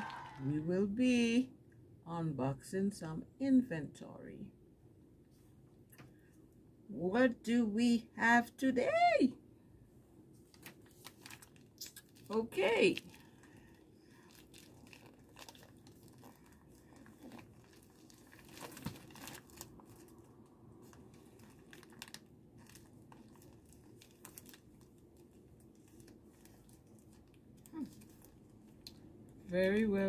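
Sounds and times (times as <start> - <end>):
plastic envelope crinkling: 10.4 - 29.1.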